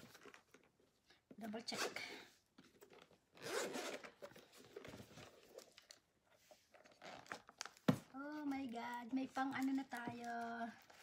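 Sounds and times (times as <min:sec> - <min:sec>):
zipper unzipping: 0:03.4 - 0:04.1.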